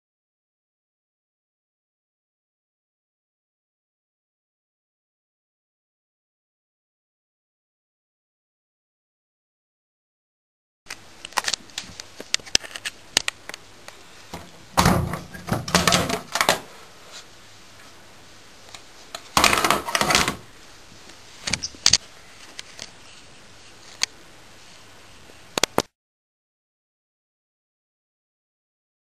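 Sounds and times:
plastic panel clicks and knocks: 0:14.4 - 0:16.6, 0:19.4 - 0:20.4
plastic panel scraping rattles: 0:14.4 - 0:16.7, 0:19.2 - 0:20.5.

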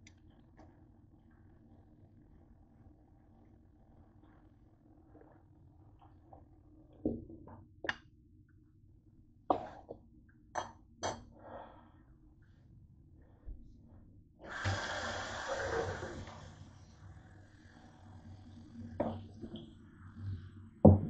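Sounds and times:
faucet water running: 0:14.5 - 0:16.7.

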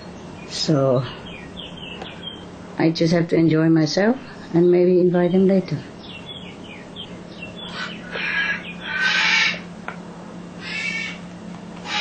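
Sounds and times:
bird harsh calls: 0:00.0 - 0:02.6, 0:06.0 - 0:09.8, 0:10.6 - 0:12.0
steady low hum: 0:00.0 - 0:12.0.

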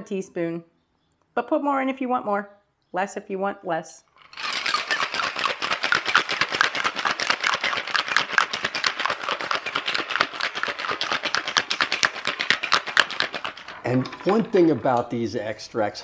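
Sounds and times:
ice rattling in cocktail shaker: 0:04.2 - 0:16.0.

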